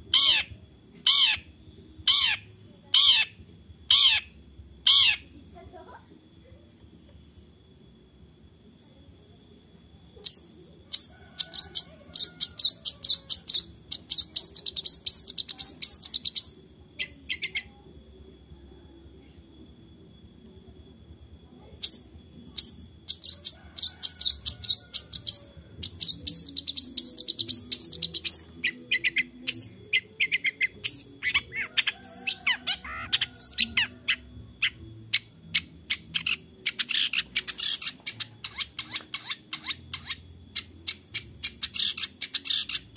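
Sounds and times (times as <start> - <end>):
bird singing chattering notes: 0.0 - 5.3, 10.2 - 17.7, 21.8 - 42.9.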